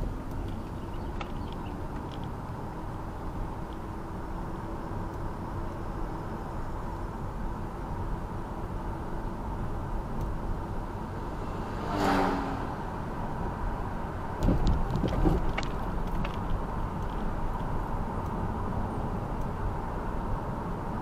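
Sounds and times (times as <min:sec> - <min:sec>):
road traffic rumble: 0:00.0 - 0:21.0
car passing by: 0:11.0 - 0:14.0.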